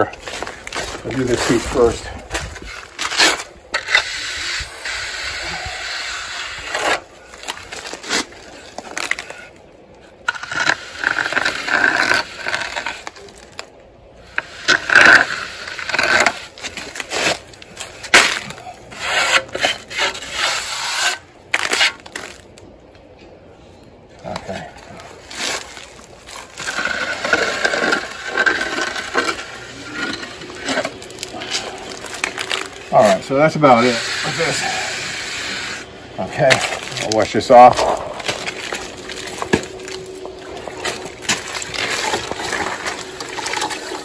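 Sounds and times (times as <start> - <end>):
darby scraping plaster: 10.3 - 13.3, 14.4 - 22.0, 26.4 - 39.8.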